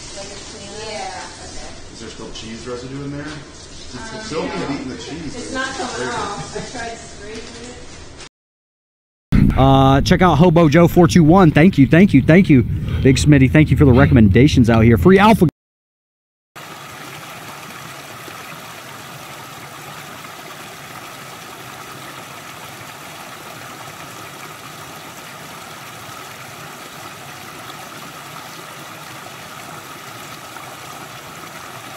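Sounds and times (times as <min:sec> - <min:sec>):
creek water rushing over stones: 0:16.6 - 0:31.9.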